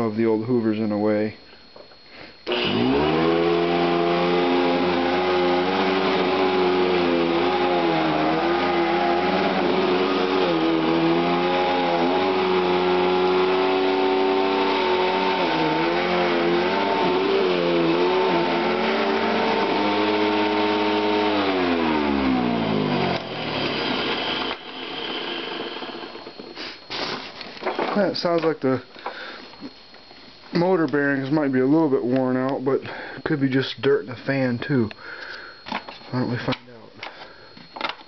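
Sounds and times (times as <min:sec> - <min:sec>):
vacuum cleaner motor humming: 0:01.8 - 0:27.3.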